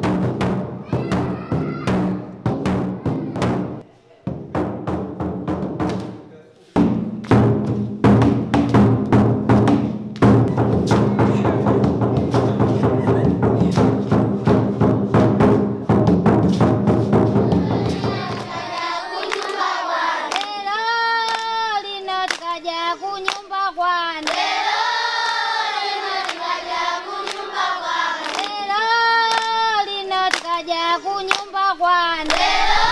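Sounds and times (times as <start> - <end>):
large drums playing: 0.0 - 6.1, 6.8 - 18.8
girl singing: 0.8 - 3.6, 17.4 - 32.9.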